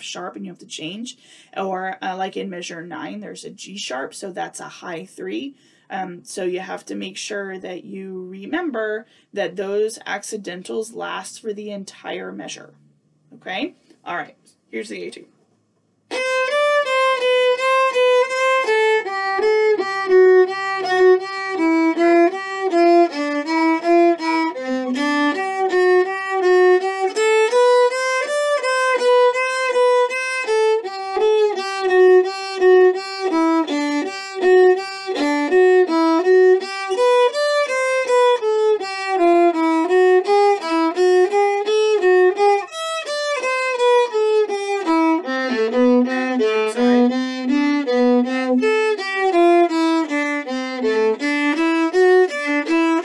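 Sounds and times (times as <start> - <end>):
solo viola playing: 16.1 - 53.0.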